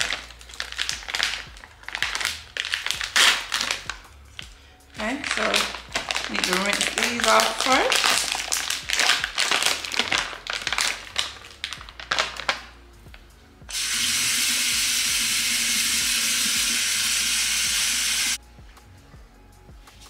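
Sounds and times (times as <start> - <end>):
plastic bag crinkling: 0.0 - 4.0, 4.9 - 12.7
kitchen tap running: 13.7 - 18.4.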